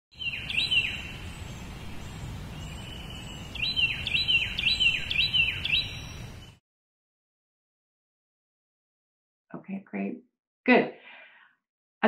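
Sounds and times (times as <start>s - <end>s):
songbird whistling: 0.1s - 1.1s, 2.6s - 6.6s.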